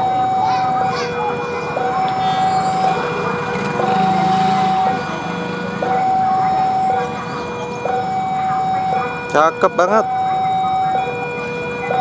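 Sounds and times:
electric train hum: 0:00.0 - 0:09.3
level crossing alarm two-tone: 0:00.0 - 0:12.0.

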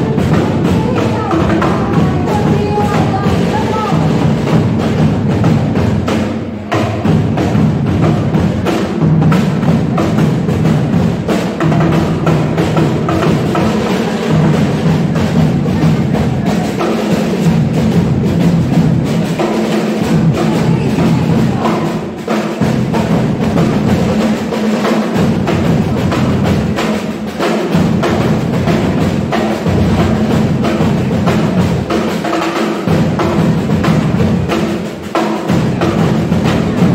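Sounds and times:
drums played with sticks: 0:00.0 - 0:36.9.

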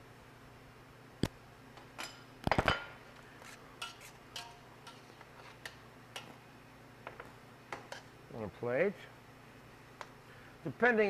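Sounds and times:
metal tongs clinking on steel bowl: 0:03.8 - 0:06.3.

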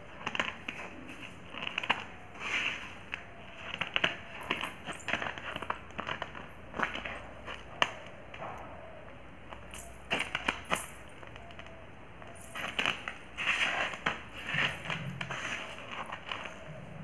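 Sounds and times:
anklet bells jingling: 0:09.6 - 0:11.5, 0:12.2 - 0:13.6.

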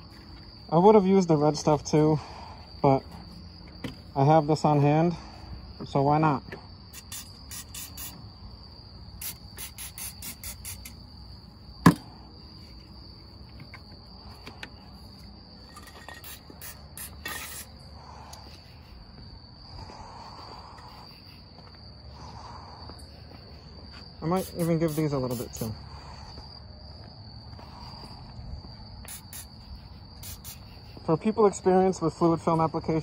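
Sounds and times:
crickets chirping: 0:00.0 - 0:33.0
sharp knock: 0:11.8 - 0:12.1.

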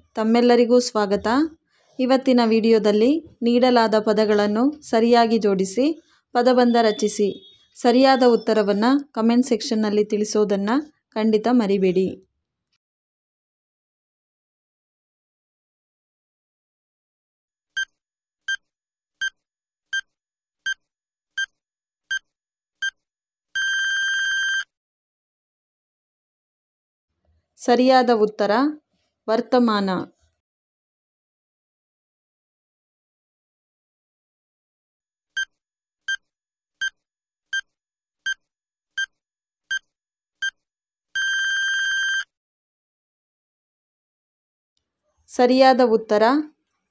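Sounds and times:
short electronic beeps: 0:06.7 - 0:08.5, 0:23.6 - 0:24.7, 0:41.2 - 0:42.3
long beep: 0:06.9 - 0:07.6, 0:23.6 - 0:24.7, 0:41.2 - 0:42.3.

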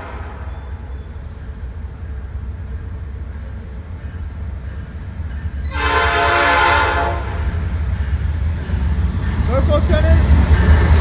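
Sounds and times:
train air horn blast: 0:00.0 - 0:00.8, 0:05.7 - 0:07.6
train rumble: 0:00.0 - 0:11.0.

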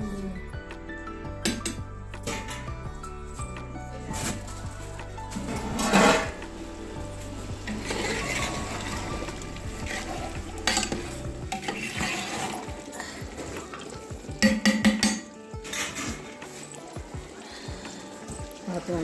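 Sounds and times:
metal ladle scraping a pot: 0:05.3 - 0:06.5, 0:07.6 - 0:13.9, 0:15.0 - 0:16.8
ladle clinking against pot: 0:10.7 - 0:12.5, 0:14.4 - 0:16.4.

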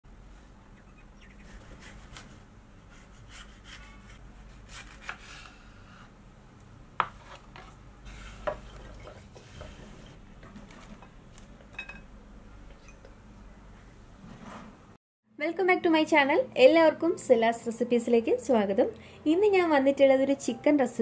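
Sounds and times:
knife cutting on wooden board: 0:01.5 - 0:06.1, 0:07.0 - 0:08.8.

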